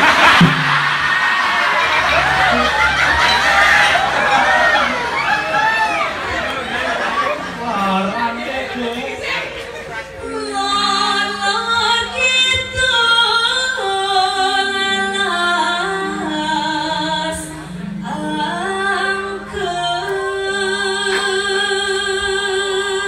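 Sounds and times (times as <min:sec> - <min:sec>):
low held accompaniment notes: 0:00.0 - 0:23.0
woman singing into a microphone: 0:10.2 - 0:23.0.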